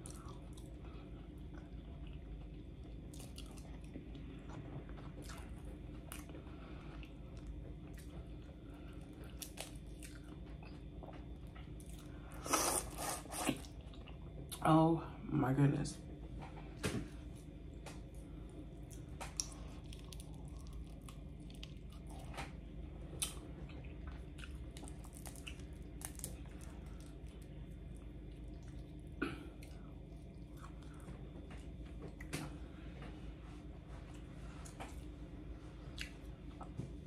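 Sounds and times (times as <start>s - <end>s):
chewing: 0.0s - 14.6s, 18.8s - 22.6s, 23.2s - 31.1s, 35.9s - 36.8s.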